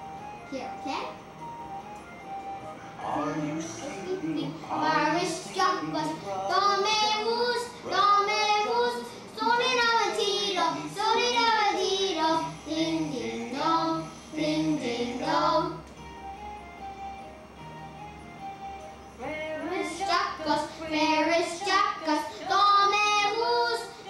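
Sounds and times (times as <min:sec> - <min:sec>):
young children singing: 0:03.1 - 0:15.9, 0:19.2 - 0:24.0.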